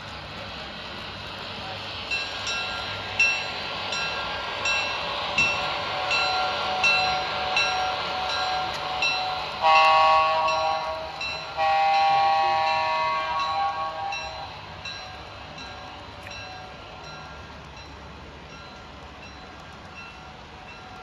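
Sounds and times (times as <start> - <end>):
train horn blowing: 8.1 - 14.6.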